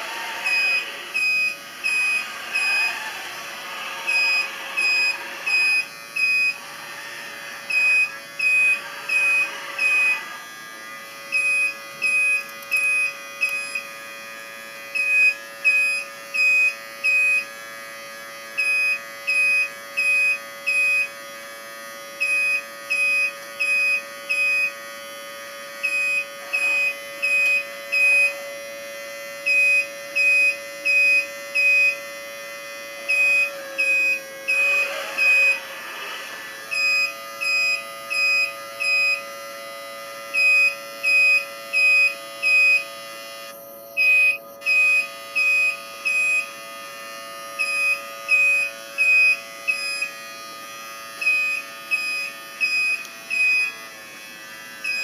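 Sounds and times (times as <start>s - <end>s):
steady electric whine: 0.0s - 55.0s
electronic warning beeps: 0.3s - 7.0s, 7.6s - 10.3s, 11.3s - 13.8s, 15.0s - 17.5s, 18.6s - 21.2s, 22.2s - 24.8s, 25.8s - 28.4s, 29.4s - 32.1s, 33.1s - 35.7s, 36.7s - 39.3s, 40.4s - 46.6s, 47.6s - 50.2s, 51.2s - 53.8s.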